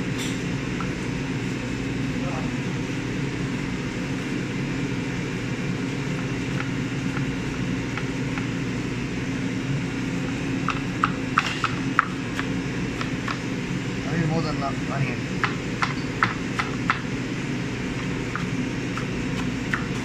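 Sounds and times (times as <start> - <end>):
low machine hum: 0.0 - 20.0
knife chopping on plastic board: 10.6 - 13.4, 15.4 - 17.1.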